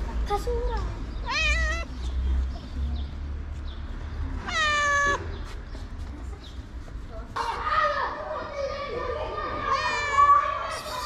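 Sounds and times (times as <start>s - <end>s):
cat meowing: 1.2s - 1.9s, 4.4s - 5.2s.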